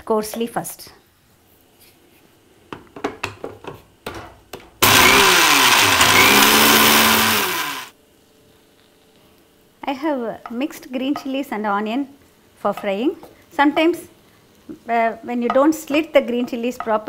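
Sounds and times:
mixer grinder motor grinding: 4.8 - 7.9.

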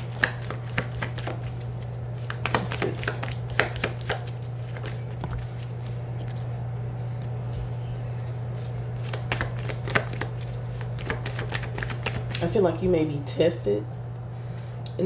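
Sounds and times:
cards being shuffled: 0.0 - 6.5, 7.2 - 12.4
steady low hum: 0.0 - 15.0.

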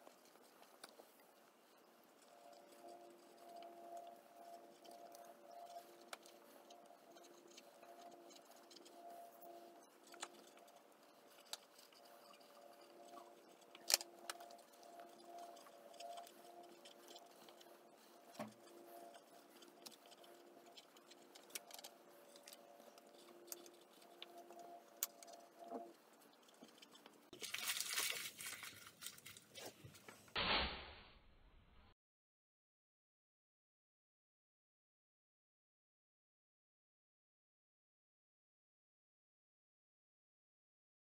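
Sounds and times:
pen scratching on paper: 2.2 - 27.0
paper rustling: 26.7 - 30.3.

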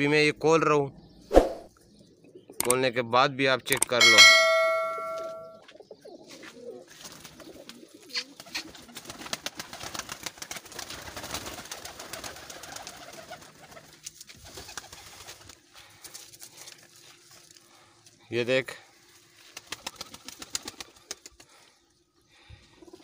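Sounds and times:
pigeons cooing: 0.9 - 2.6, 5.7 - 15.5, 22.4 - 23.0
bell-like chime: 4.0 - 5.6
wings flapping: 7.0 - 16.8, 19.4 - 21.6.

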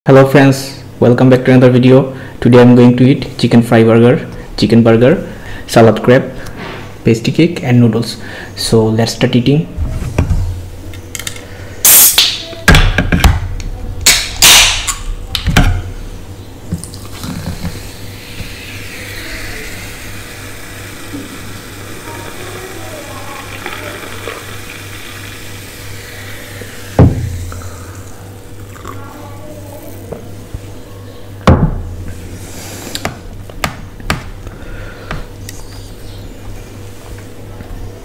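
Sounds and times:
can hissing and fizzing: 16.8 - 30.1
single thump: 27.0 - 27.4.

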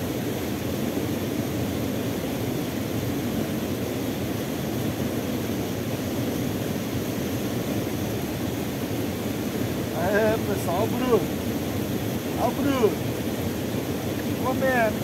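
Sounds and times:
small waterfall rushing: 0.0 - 15.0
falling rain: 9.5 - 15.0.

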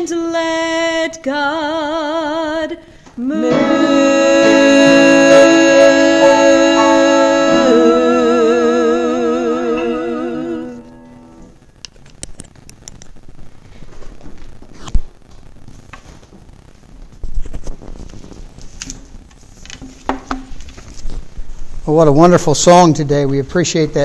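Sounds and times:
women singing in harmony: 0.0 - 11.0.

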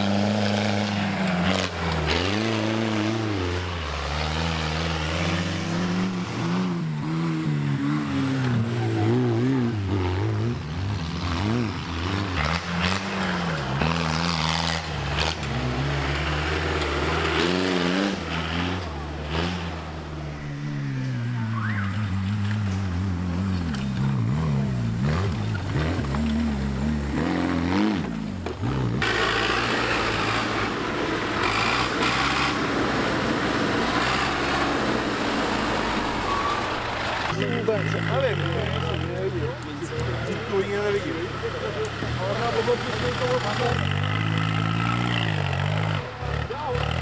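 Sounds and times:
tractor diesel engines revving: 0.0 - 47.0
tractor engine clattering: 36.7 - 47.0.

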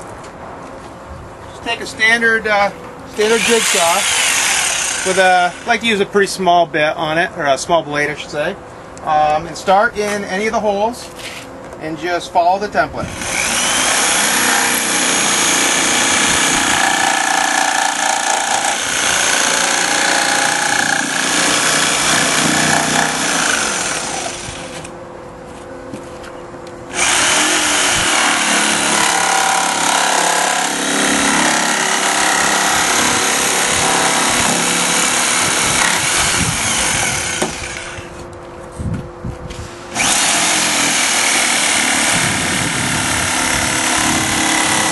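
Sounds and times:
jigsaw cutting plastic: 13.1 - 24.9, 26.9 - 38.1, 40.0 - 44.9.

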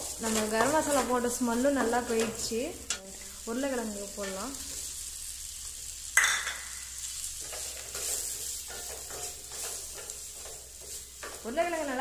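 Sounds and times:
spatula stirring: 0.0 - 3.4, 6.9 - 12.0
food sizzling in a pan: 0.0 - 12.0.

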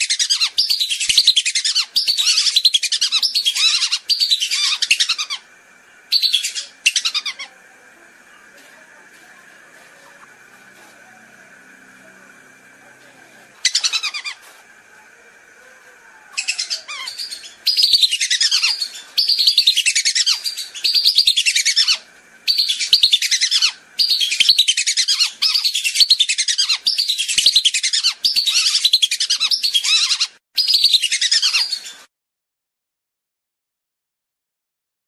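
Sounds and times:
ducks whistling: 6.1 - 7.6, 13.6 - 14.5, 16.3 - 32.0.

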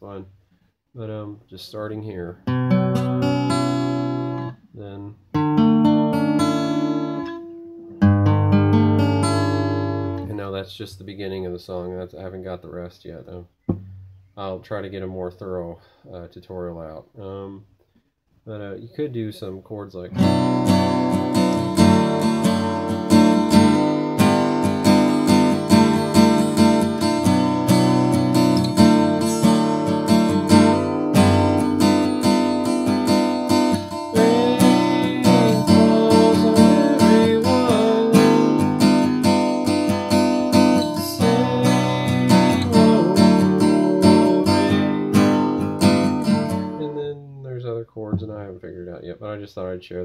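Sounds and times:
acoustic guitar strumming: 2.4 - 10.4, 13.7 - 14.3, 20.2 - 47.2.

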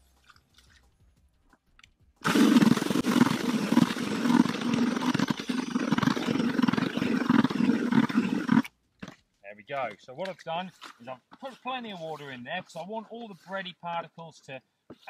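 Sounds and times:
drill spinning paddle mixer: 2.2 - 8.7.

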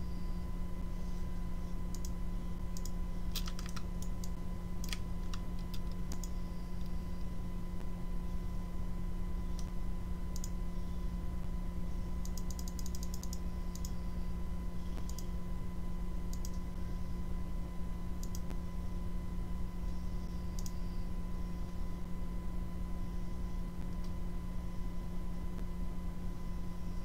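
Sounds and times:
steady low hum: 0.0 - 27.0
computer mouse clicks: 1.9 - 2.2, 2.8 - 7.3, 10.4 - 10.6, 12.2 - 14.0, 15.0 - 15.3, 16.3 - 16.6, 18.2 - 18.6, 20.5 - 20.8.

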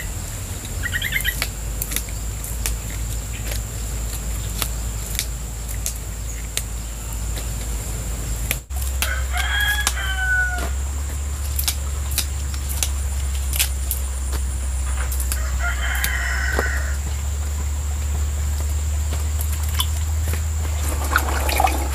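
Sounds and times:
steady low hum: 0.0 - 21.9
plant stalks snapping by hand: 0.6 - 21.9
rooster crowing: 8.9 - 11.4, 14.9 - 18.1.

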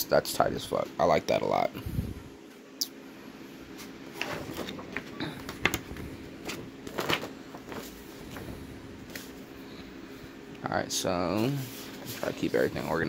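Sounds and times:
paper crackling and rustling: 4.1 - 9.5.

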